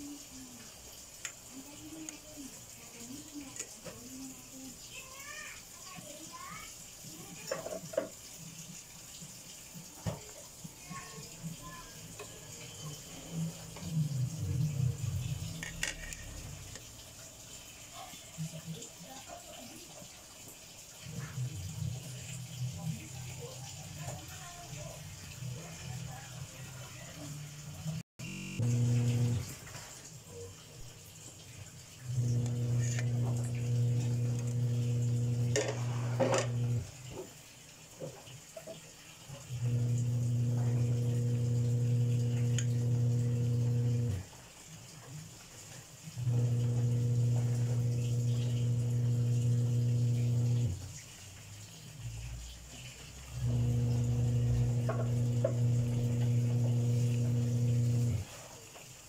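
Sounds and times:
kitchen appliance electrical hum: 27.1 - 29.8, 32.0 - 37.0, 39.3 - 44.4, 46.2 - 51.0, 53.2 - 58.4.

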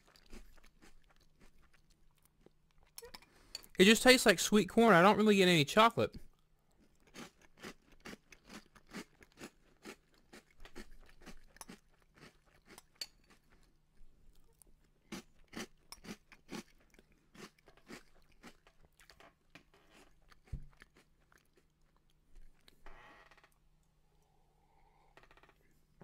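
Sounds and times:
chewing crunchy cereal: 0.0 - 3.8, 6.2 - 22.8.

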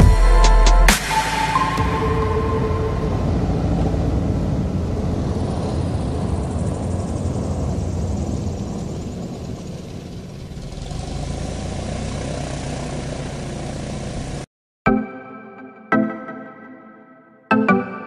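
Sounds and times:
propeller plane engine running: 2.5 - 14.5.

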